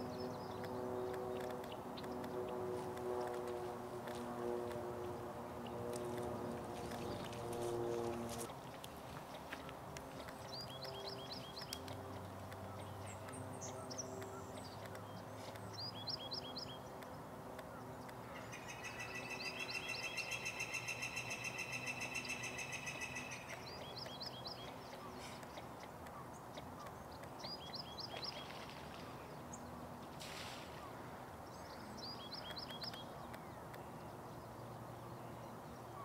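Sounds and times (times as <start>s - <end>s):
low background noise: 0.0s - 36.0s
songbird trilling: 18.3s - 25.3s
brief hiss: 30.2s - 30.9s.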